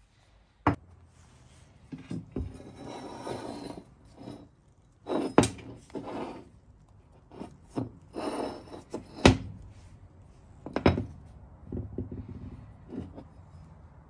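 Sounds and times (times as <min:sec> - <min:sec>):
metal scraping on bench: 0:01.8 - 0:06.6, 0:07.3 - 0:09.9, 0:12.0 - 0:14.0.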